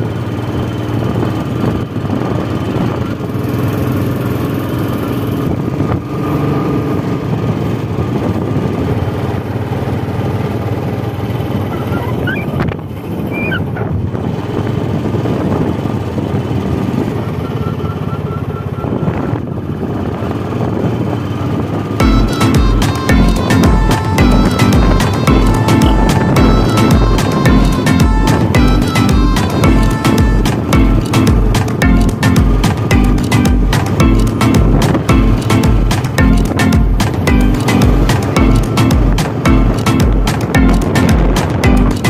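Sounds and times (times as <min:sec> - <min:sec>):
motorcycle engine cruising: 0:00.0 - 0:42.0
road and wind noise: 0:00.0 - 0:42.0.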